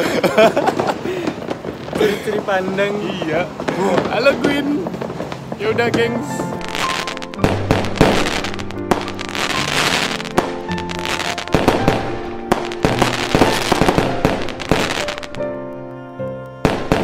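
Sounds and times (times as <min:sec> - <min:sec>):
fireworks banging and crackling: 0:00.0 - 0:17.0
background music with held tones: 0:05.7 - 0:17.0.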